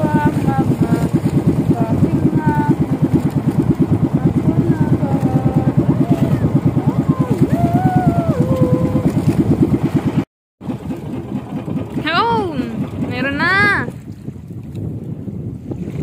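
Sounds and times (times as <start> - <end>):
boat engine chugging: 0.0 - 16.0
water: 0.0 - 16.0
wind: 0.0 - 16.0.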